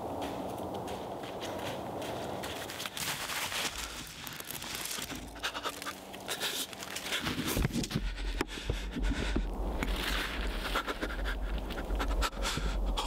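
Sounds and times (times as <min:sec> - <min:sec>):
footsteps crunching through snow: 0:00.0 - 0:08.2, 0:09.1 - 0:11.9
hard breathing: 0:03.5 - 0:13.0.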